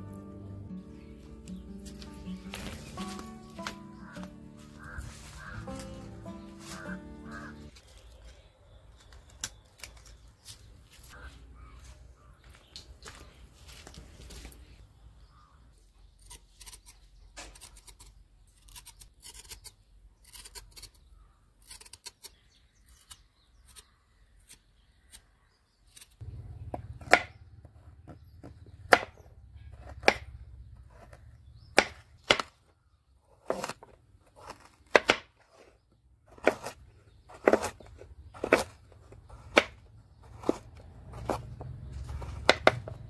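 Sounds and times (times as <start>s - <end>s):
knife scraping root skin: 1.5s - 8.1s, 16.1s - 26.2s, 33.3s - 43.0s
knife chopping on wooden board: 26.7s - 27.4s, 28.1s - 30.3s, 31.8s - 32.5s, 33.4s - 33.8s, 34.4s - 35.5s, 36.4s - 43.0s.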